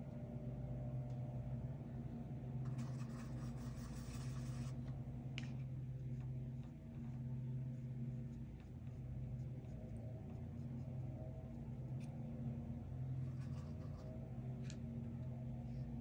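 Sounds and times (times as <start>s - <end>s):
steady low hum: 0.0s - 16.0s
drawing tool scratching paper: 2.7s - 4.8s.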